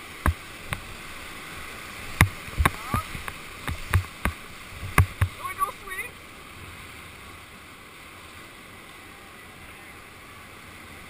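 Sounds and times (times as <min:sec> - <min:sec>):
whitewater rushing: 0:00.0 - 0:11.0
knocks and thumps against raft: 0:02.0 - 0:05.6.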